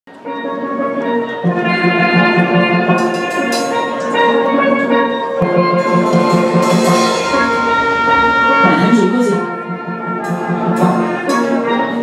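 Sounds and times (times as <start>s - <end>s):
steel pan band playing: 0.1s - 12.0s
low note struck in runs: 5.4s - 11.6s.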